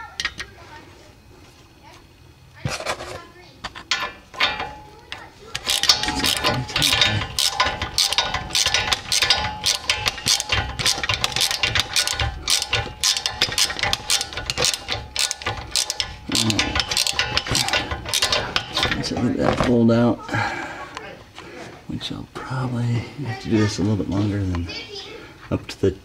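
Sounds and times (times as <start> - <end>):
ratchet wrench clicking: 3.8 - 19.1.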